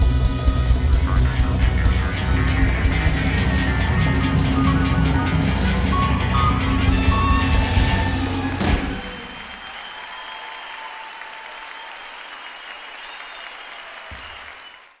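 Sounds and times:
live band playing: 0.0 - 9.7
audience applauding: 6.5 - 15.0.

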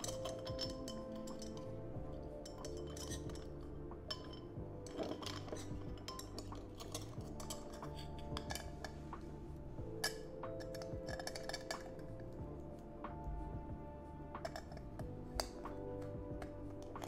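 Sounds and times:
metal lid clinking on glass jar: 0.0 - 9.0, 9.9 - 12.3, 14.4 - 17.0
background music: 0.0 - 17.0.

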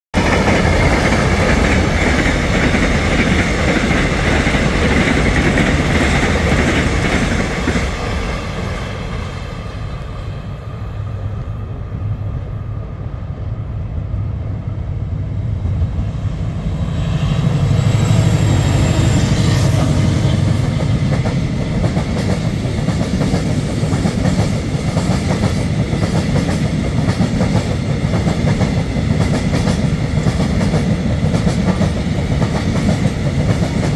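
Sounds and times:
diesel locomotive passing: 0.1 - 33.9
wagons rumbling and clacking over rails: 0.2 - 8.9.

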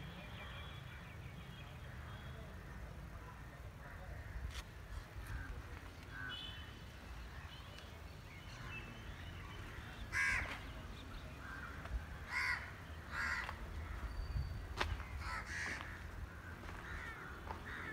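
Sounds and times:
crows cawing: 9.7 - 10.6, 11.4 - 14.1, 15.0 - 17.9.

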